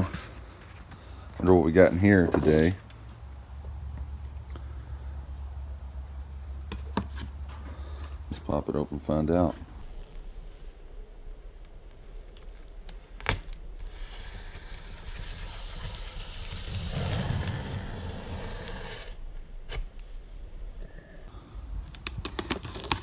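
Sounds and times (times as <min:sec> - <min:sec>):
knife slitting packing tape: 0:21.9 - 0:23.0.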